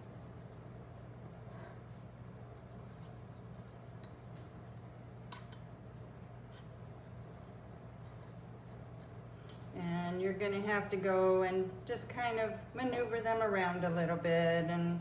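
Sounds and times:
steady low hum: 0.0 - 15.0
soft rustles: 6.0 - 15.0.

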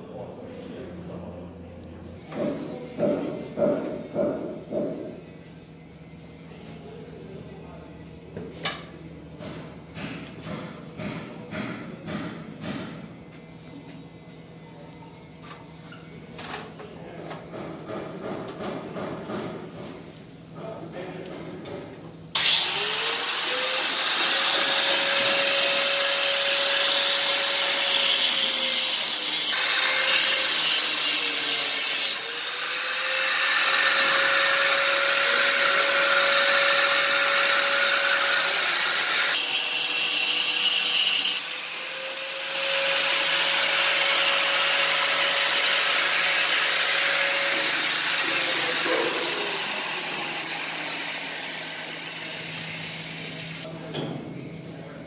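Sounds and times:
power tool motor whine: 22.3 - 53.7.

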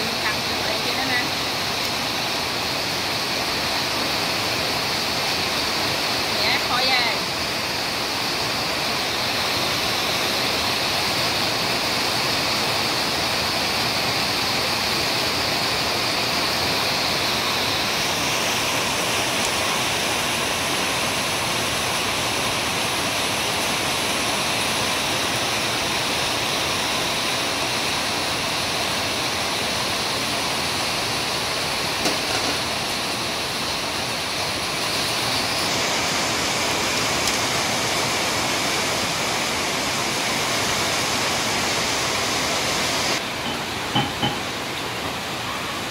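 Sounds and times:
pot boiling: 0.0 - 45.9
utensils knocking against pot: 43.4 - 44.5.

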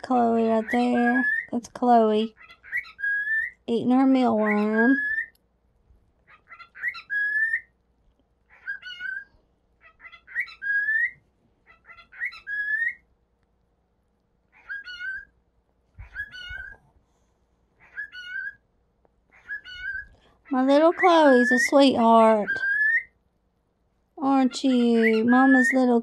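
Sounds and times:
cockatiel whistling: 2.5 - 3.6, 6.5 - 7.7, 10.0 - 13.0, 14.6 - 15.3, 16.0 - 16.8, 17.8 - 18.6, 19.4 - 20.1, 22.4 - 23.1.

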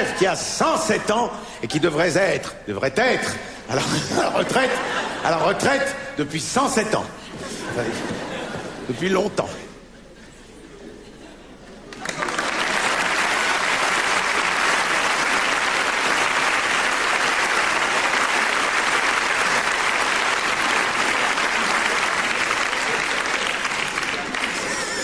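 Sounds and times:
audience applauding: 11.8 - 25.0.

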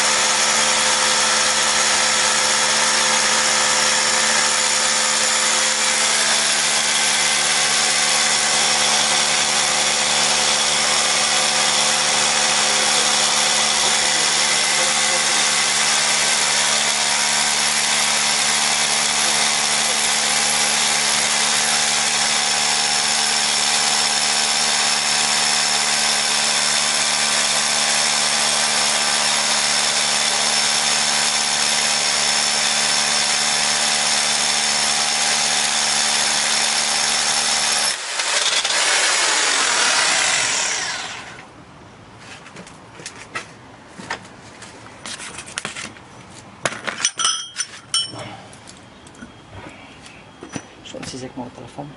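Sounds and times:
rotary hammer drilling into concrete: 0.0 - 41.4.

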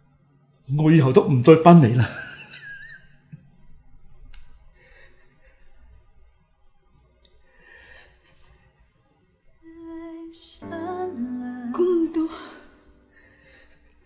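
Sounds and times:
faint breaths: 4.6 - 6.2, 7.4 - 9.2, 12.3 - 14.0.

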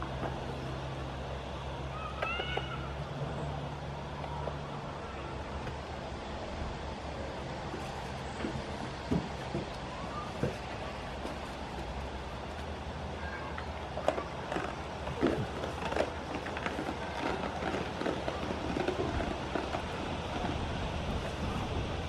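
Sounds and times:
steady low hum: 0.0 - 22.0
goats crunching food: 7.1 - 22.0.

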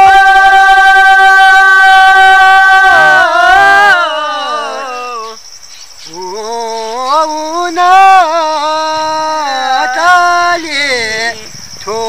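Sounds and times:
man singing unaccompanied: 0.0 - 5.4, 6.1 - 12.0
high-pitched insect drone: 0.0 - 12.0.

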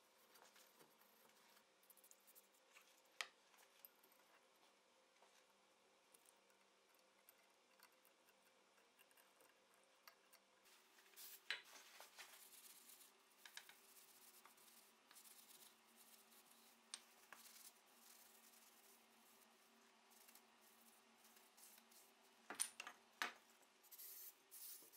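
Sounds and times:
small ticks: 6.1 - 10.6.

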